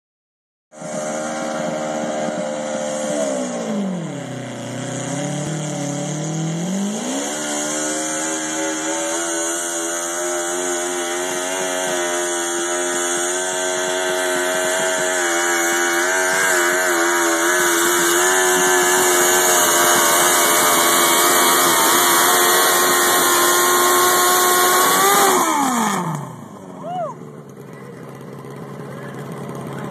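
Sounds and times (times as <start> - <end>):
tractor engine running under load: 8.2 - 29.9.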